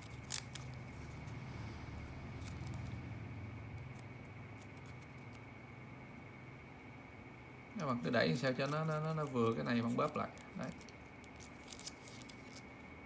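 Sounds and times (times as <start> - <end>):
paper bill crinkling and clicking: 0.0 - 1.3, 3.8 - 5.5, 8.4 - 12.7
steady low hum: 0.0 - 13.0.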